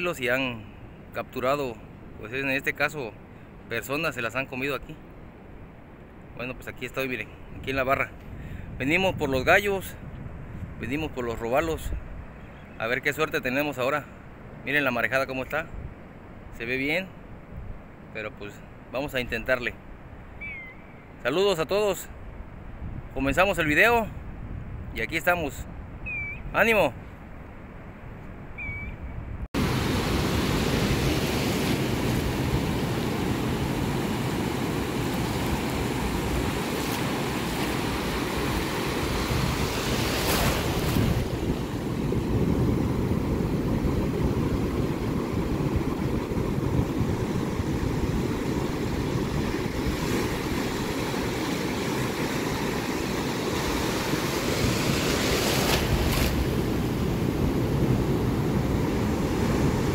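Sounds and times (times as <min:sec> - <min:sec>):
wind on microphone: 0:07.5 - 0:11.1, 0:22.6 - 0:27.4, 0:28.0 - 0:59.9
ocean surf breaking: 0:29.6 - 0:59.9.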